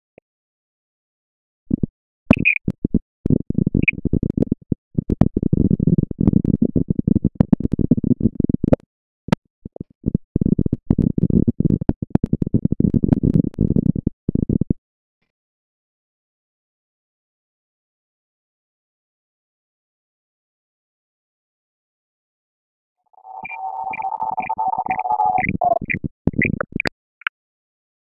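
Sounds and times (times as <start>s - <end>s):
brief high chirps: 23.1s - 26.0s.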